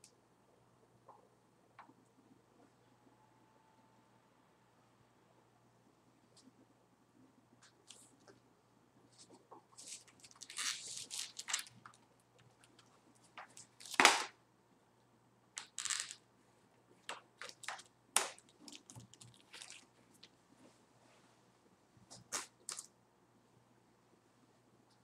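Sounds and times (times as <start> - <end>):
card pack wrappers tearing: 9.9 - 11.8.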